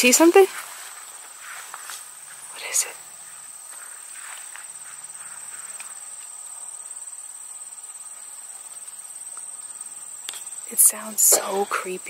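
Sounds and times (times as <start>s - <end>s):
insects trilling: 0.0s - 12.0s
dry corn leaves rustling: 0.5s - 2.1s.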